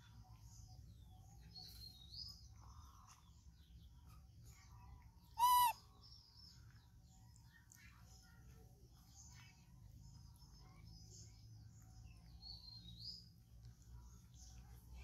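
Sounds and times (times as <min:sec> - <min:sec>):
faint bird chirps: 0:00.0 - 0:15.0
baby monkey squeak: 0:05.4 - 0:05.8.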